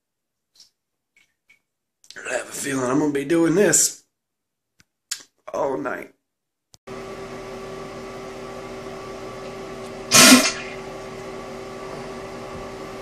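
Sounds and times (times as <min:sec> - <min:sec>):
machine hum: 0:06.9 - 0:13.0
loud burst of noise: 0:10.1 - 0:10.8.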